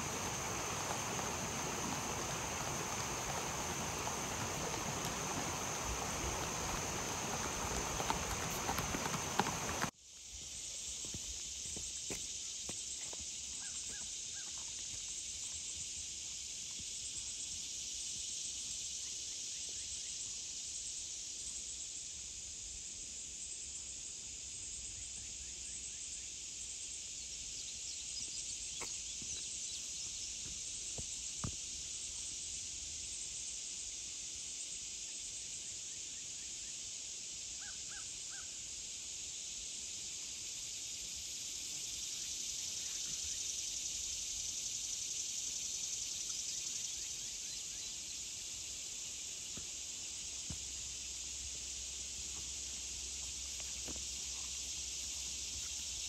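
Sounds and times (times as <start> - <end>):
steady high hiss: 0.0 - 12.6, 26.0 - 56.0.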